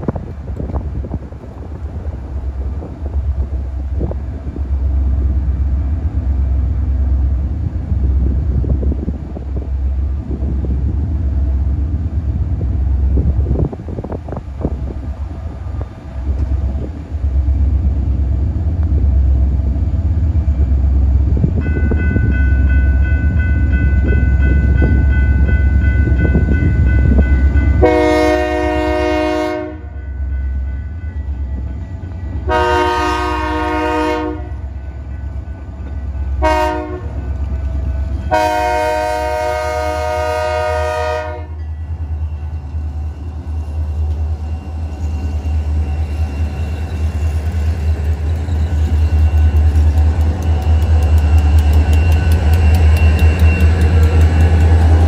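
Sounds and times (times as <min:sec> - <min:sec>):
wind on microphone: 0:00.0 - 0:05.5, 0:07.3 - 0:17.2, 0:23.5 - 0:27.8
train rumble: 0:00.0 - 0:55.0
locomotive horn blast: 0:27.8 - 0:30.0, 0:32.4 - 0:34.7, 0:36.4 - 0:37.2, 0:38.3 - 0:41.6.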